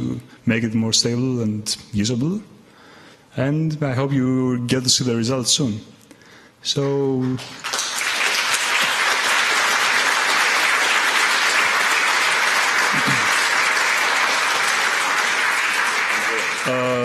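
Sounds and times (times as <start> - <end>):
audience applauding: 7.3 - 17.0.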